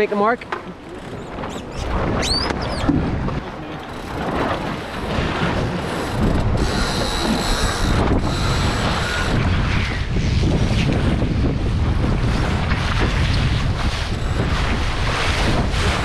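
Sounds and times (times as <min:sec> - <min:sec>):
water rushing: 0:00.0 - 0:09.4
wind: 0:00.0 - 0:16.0.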